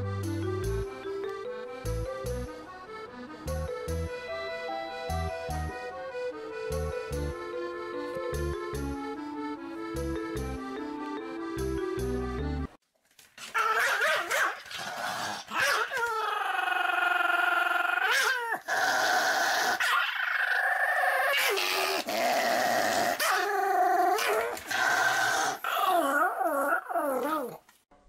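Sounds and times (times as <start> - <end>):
dog yelping: 13.5 - 14.7, 15.5 - 18.7
dog whining: 15.5 - 27.7.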